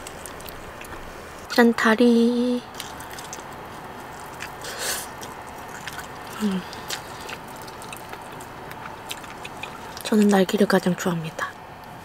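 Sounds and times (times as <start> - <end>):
person chewing: 0.0 - 1.5, 2.7 - 10.4
wet mouth clicks: 2.7 - 3.5, 4.1 - 10.4
person humming mm: 6.4 - 6.8.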